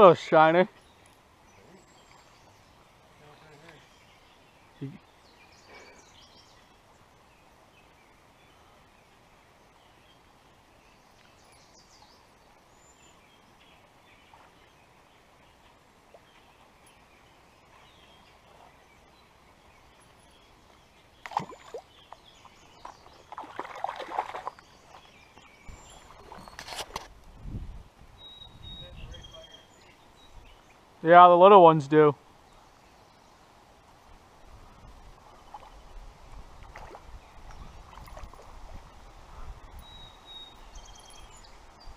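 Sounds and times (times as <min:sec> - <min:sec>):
creek ambience: 0:00.0 - 0:41.9
fishing gear handling noise: 0:26.2 - 0:27.1
faint high bird chirps: 0:28.2 - 0:30.8, 0:39.7 - 0:41.9.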